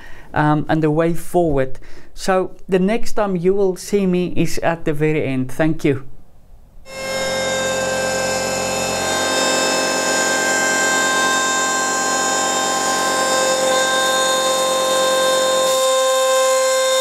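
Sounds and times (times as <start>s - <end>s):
router spindle milling metal: 6.9s - 17.0s.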